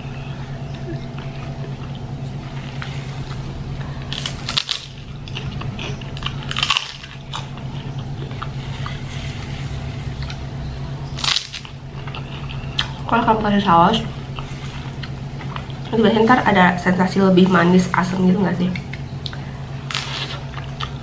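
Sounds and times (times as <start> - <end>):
steady low hum: 0.0 - 21.0
cracker crunching: 0.7 - 13.2, 18.8 - 21.0.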